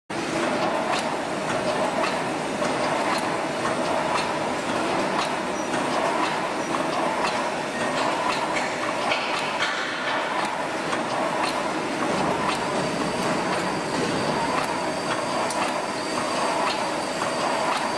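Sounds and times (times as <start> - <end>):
welding machine clatter: 0.4 - 13.7.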